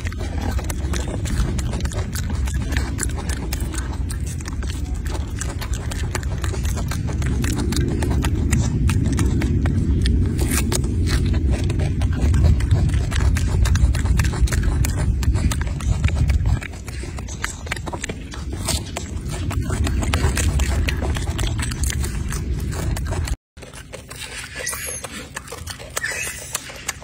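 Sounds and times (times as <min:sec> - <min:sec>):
low rumble: 0:00.0 - 0:27.0
monkey chewing and lip smacking: 0:00.0 - 0:27.0.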